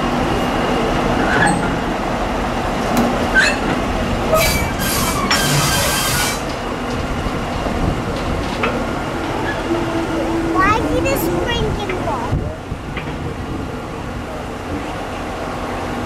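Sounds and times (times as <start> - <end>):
train wheels rumbling on rail: 0.0 - 16.0.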